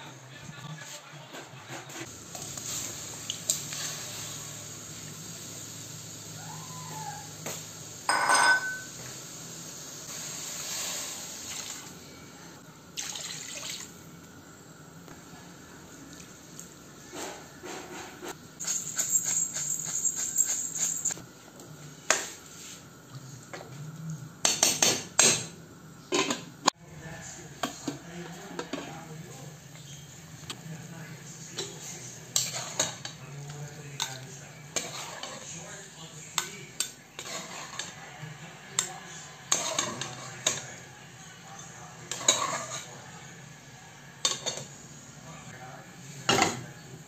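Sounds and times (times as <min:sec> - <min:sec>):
utensils knocking against pot: 0:08.1 - 0:08.9
water splashing into pot: 0:13.0 - 0:14.0.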